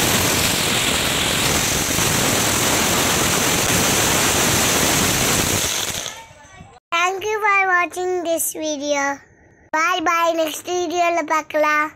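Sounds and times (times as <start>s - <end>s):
fountain firework hissing and crackling: 0.0s - 6.3s.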